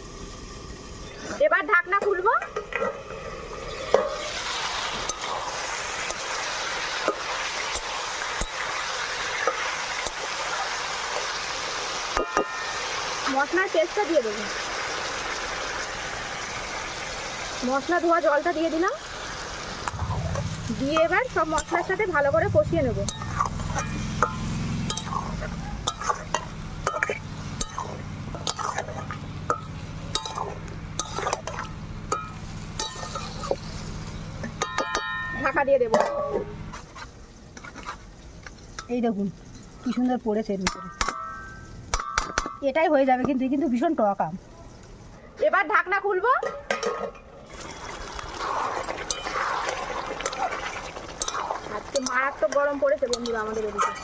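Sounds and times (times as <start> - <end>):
chicken sizzling in hot oil: 0.0 - 45.1, 47.4 - 54.0
steady low hum: 19.1 - 37.5
spatula scraping metal pan: 22.9 - 33.7, 48.4 - 54.0.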